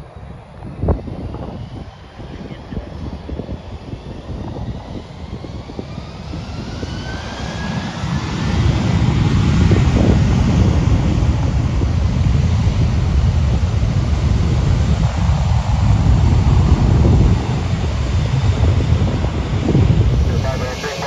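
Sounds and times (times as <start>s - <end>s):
jet engines spooling up: 19.7s - 21.0s.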